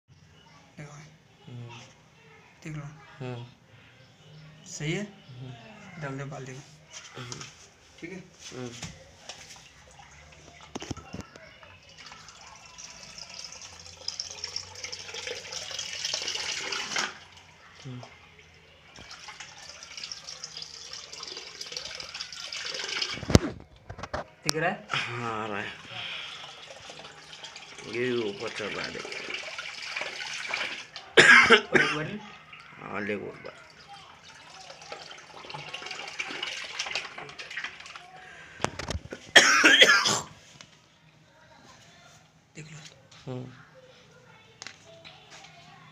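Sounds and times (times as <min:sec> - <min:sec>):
water running into a bucket: 0:11.7 - 0:23.6, 0:25.4 - 0:31.3, 0:32.4 - 0:38.2.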